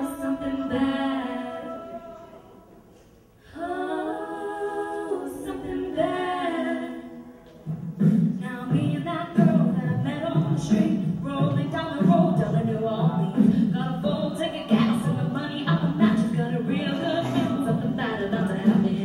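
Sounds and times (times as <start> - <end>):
a cappella group singing chords: 0.0 - 19.0
vocal bass and percussion beat: 7.6 - 19.0.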